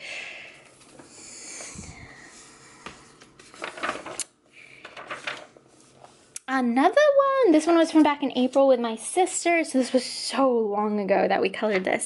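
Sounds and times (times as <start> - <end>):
paper page rustling: 3.2 - 6.3.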